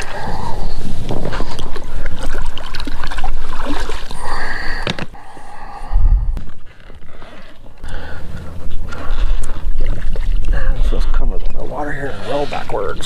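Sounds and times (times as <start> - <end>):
swim fins splashing in water: 1.1 - 4.3
low rumble: 5.4 - 11.7.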